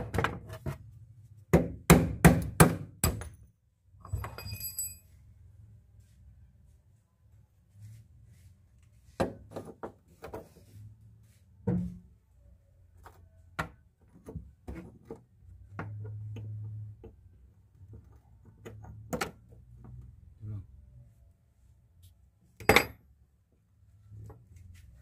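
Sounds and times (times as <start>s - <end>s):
rusted metal parts clinking: 4.0s - 5.2s.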